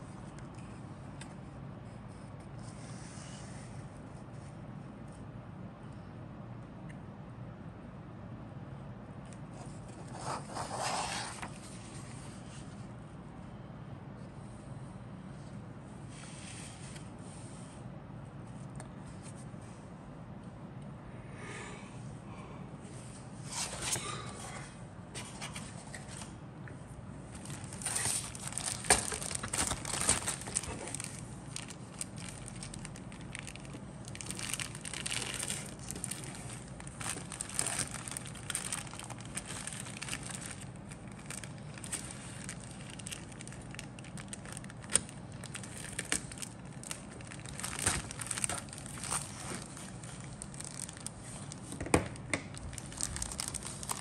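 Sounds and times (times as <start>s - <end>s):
plastic bag crinkling: 27.4s - 54.0s.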